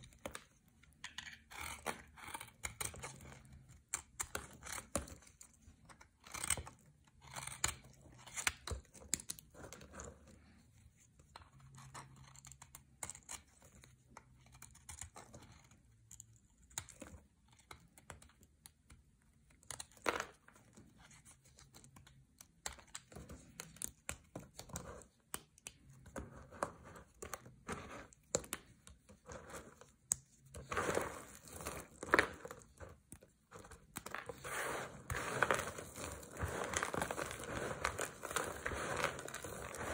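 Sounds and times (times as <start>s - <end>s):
knife shaving bar soap: 0.0s - 10.6s, 11.2s - 39.9s
soap chips crunching: 34.6s - 39.9s.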